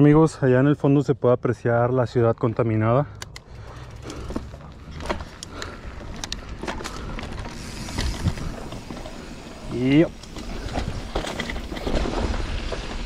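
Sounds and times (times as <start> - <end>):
bike clicks and rattles: 3.2 - 13.0
bike tyres on dirt and stones: 3.3 - 13.0.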